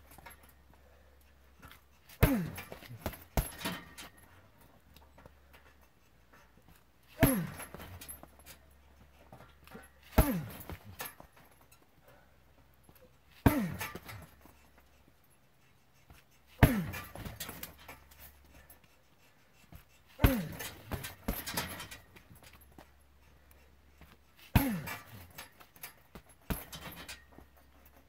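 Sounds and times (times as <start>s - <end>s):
rattling: 1.6s - 12.0s, 12.8s - 14.8s, 16.6s - 18.9s, 20.2s - 28.0s
kicks thudding on heavy bag: 2.2s - 3.9s, 7.2s - 8.4s, 10.1s - 11.2s, 13.4s - 14.4s, 16.6s - 17.8s, 20.2s - 22.5s, 24.5s - 25.4s, 26.1s - 27.0s.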